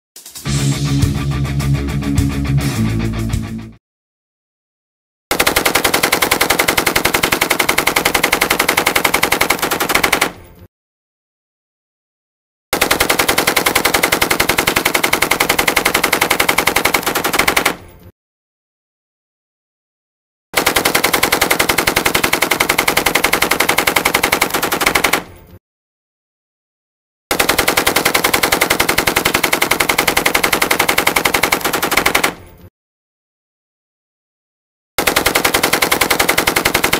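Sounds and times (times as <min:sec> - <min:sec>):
machine gun firing burst: 0:05.3 - 0:10.3, 0:12.8 - 0:17.8, 0:20.6 - 0:25.2, 0:27.3 - 0:32.4, 0:35.0 - 0:36.9.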